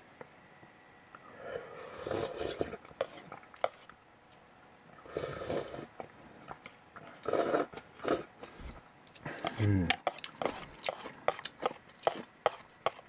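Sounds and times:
slurping noodles: 1.4 - 3.2, 5.0 - 5.9, 7.2 - 8.3.

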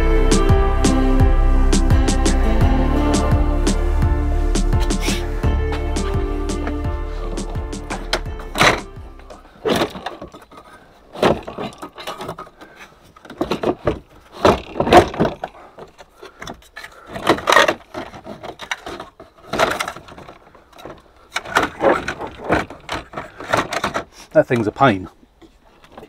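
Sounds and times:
plastic dashboard parts rattling: 6.6 - 24.9.

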